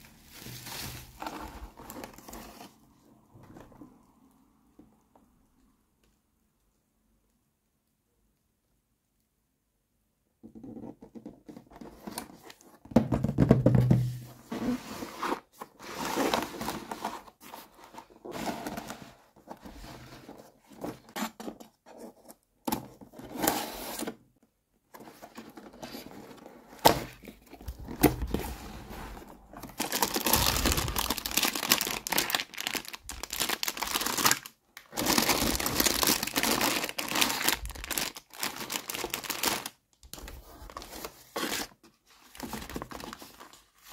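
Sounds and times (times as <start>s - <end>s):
cardboard box scraping and tearing: 28.2s - 32.7s
plastic bag crinkling: 29.4s - 39.8s.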